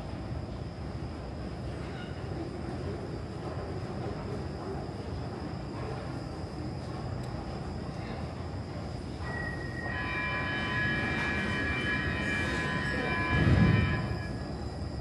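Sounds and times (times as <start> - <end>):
metro train squealing: 0.0 - 15.0
train rumble: 0.0 - 15.0.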